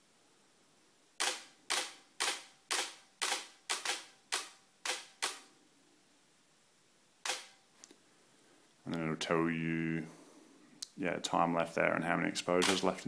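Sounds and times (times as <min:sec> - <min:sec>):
camera shutter clicks: 0:01.2 - 0:05.5, 0:07.2 - 0:07.6, 0:12.6 - 0:12.9.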